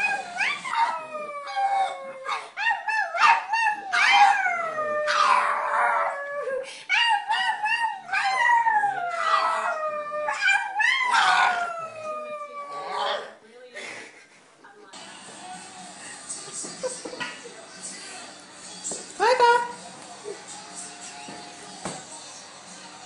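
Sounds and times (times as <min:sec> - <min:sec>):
dog howling: 0:00.0 - 0:13.3.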